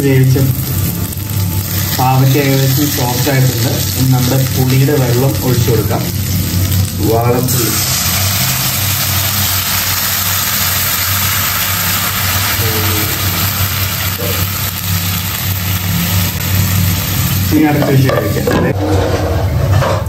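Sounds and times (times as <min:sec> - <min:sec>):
food sizzling in a pan: 0:00.0 - 0:18.8
steady low hum: 0:00.0 - 0:20.0
person speaking: 0:02.0 - 0:06.2, 0:12.5 - 0:14.5.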